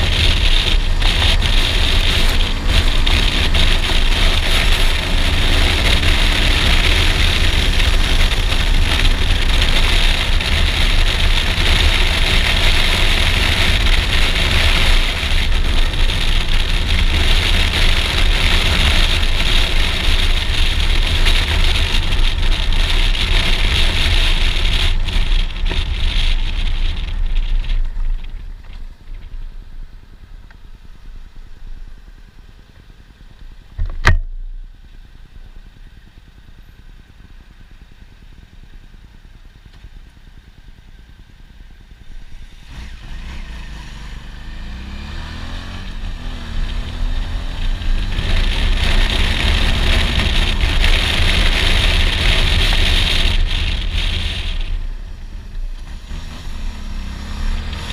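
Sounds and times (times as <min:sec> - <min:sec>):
motorcycle engine: 0:00.0 - 0:57.9
wind and road rush: 0:00.0 - 0:57.9
motorcycle engine idling: 0:26.6 - 0:42.4.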